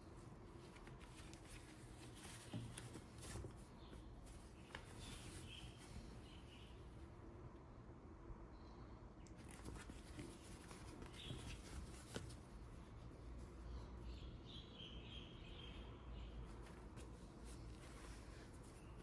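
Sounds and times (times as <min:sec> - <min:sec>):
fabric rustling: 0:00.1 - 0:06.4, 0:16.5 - 0:19.0.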